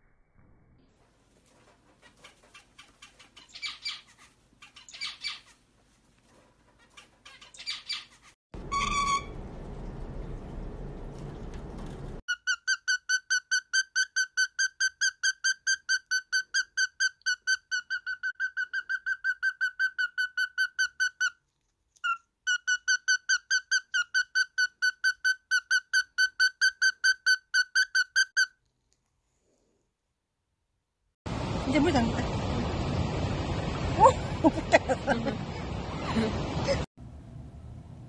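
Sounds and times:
bird peeping: 2.0s - 5.6s, 6.8s - 8.3s.

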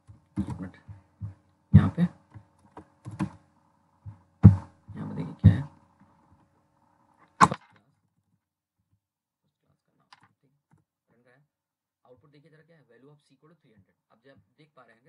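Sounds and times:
computer keyboard keys struck: 0.4s - 3.4s.

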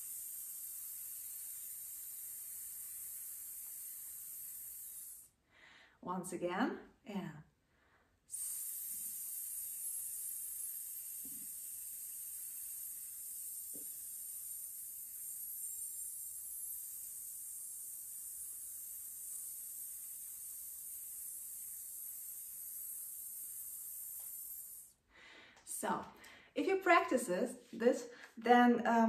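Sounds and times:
woman hissing s sound: 0.0s - 5.3s, 8.3s - 24.9s.

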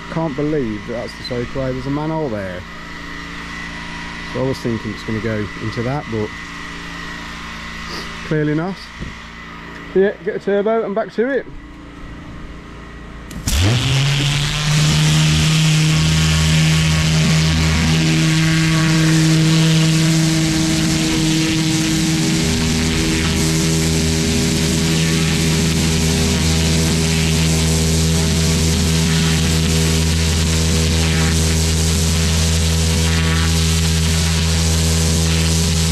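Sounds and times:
pressure washer pump droning: 0.0s - 10.0s, 12.5s - 35.9s
pressure washer jet hissing: 13.3s - 35.9s.

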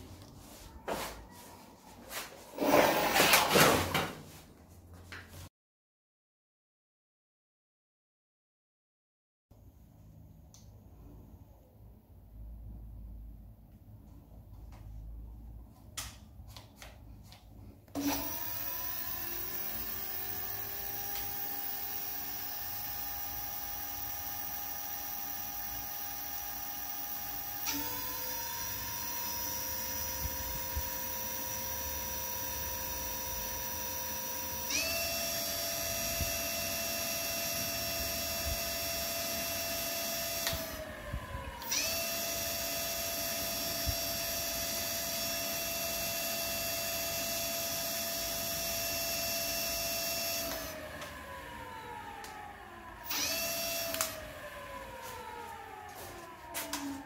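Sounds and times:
electric scooter motor whining: 18.0s - 57.0s.

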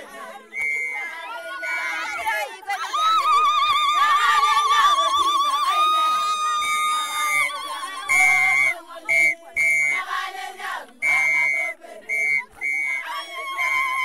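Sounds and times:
crowd singing and ululating: 0.0s - 14.0s
whistle shrill blasts: 0.5s - 1.9s, 6.1s - 10.0s, 11.0s - 14.0s.

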